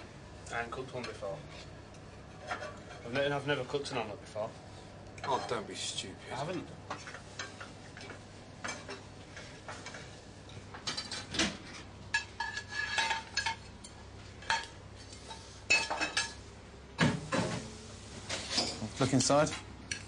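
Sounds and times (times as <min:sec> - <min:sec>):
plates and cutlery clinking: 0:06.9 - 0:16.4, 0:18.3 - 0:20.0.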